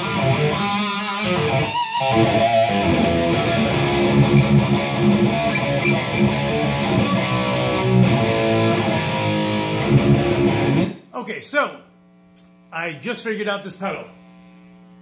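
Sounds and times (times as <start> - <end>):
distorted electric guitar riffing: 0.0 - 11.1.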